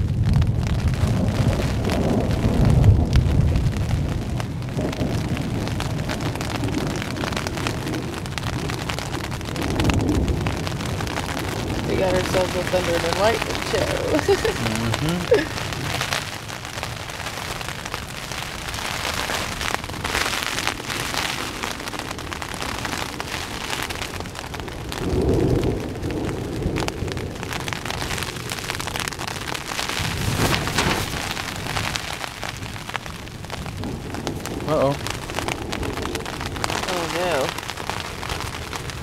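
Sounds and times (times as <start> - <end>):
low thunder rumbles: 0.0 - 39.0
rain on tent fabric: 0.0 - 39.0.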